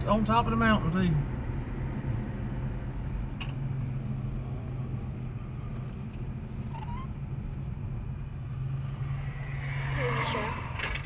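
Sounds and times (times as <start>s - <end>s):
car engine hum: 0.0s - 11.0s
short high squeak: 6.7s - 7.2s.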